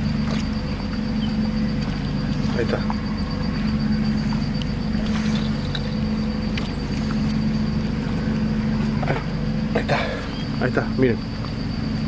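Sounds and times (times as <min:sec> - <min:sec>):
steady engine drone: 0:00.0 - 0:12.0.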